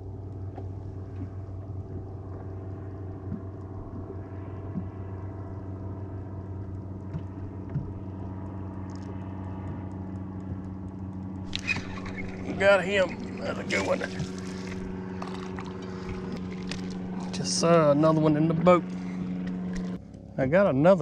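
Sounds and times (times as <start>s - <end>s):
boat motor humming: 0.0s - 21.0s
light knocks against hull: 7.0s - 8.1s, 11.5s - 17.4s.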